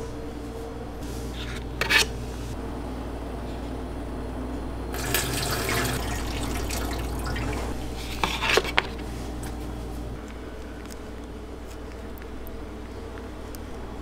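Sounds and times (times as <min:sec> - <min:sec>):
steady low hum: 0:00.0 - 0:14.0
water pouring into sink: 0:04.9 - 0:08.5.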